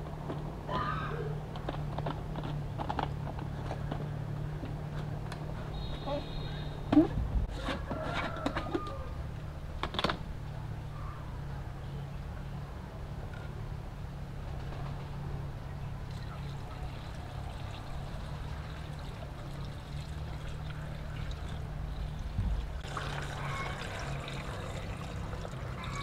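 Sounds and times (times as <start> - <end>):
water pouring into plastic jar: 16.5 - 26.0.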